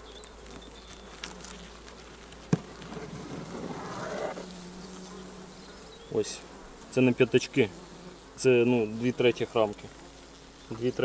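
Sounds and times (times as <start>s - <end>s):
hive tool crack: 0.0s - 5.4s
honeybees buzzing: 0.0s - 11.0s
wood scraping on wood: 0.3s - 5.2s.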